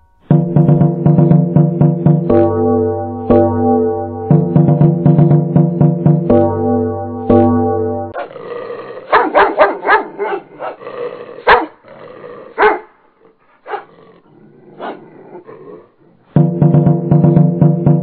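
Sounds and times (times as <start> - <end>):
small dog barking: 9.1 - 10.8, 11.4 - 11.8, 12.6 - 13.0, 13.6 - 13.9, 14.8 - 15.0.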